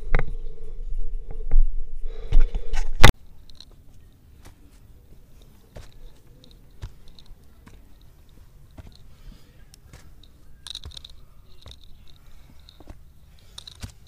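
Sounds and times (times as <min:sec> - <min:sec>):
footsteps on dry leaves and twigs: 0:03.1 - 0:14.0.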